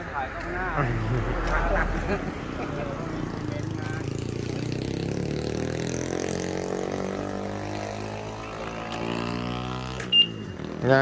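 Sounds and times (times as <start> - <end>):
small motorcycle engine running: 3.2 - 11.0.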